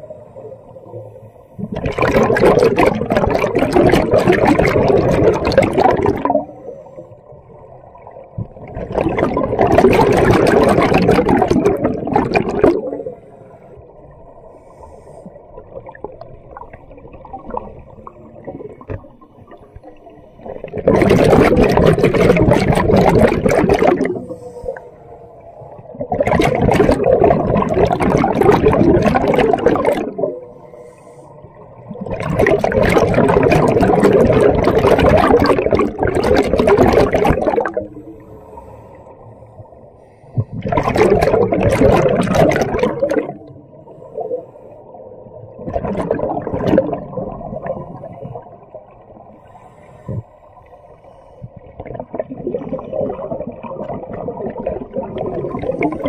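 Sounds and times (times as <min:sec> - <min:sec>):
diver exhaling bubbles underwater: 0:01.6 - 0:06.6, 0:08.2 - 0:13.2, 0:15.6 - 0:24.4, 0:25.8 - 0:30.4, 0:31.8 - 0:38.2, 0:40.4 - 0:43.6, 0:45.4 - 0:49.0, 0:51.6 - 0:56.0.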